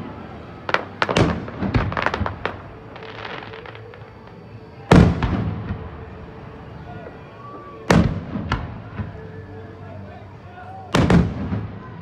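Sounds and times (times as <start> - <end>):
fireworks bangs: 0.0 - 6.2, 7.9 - 9.2, 10.9 - 12.0
fireworks crackling: 0.0 - 9.4, 10.9 - 12.0.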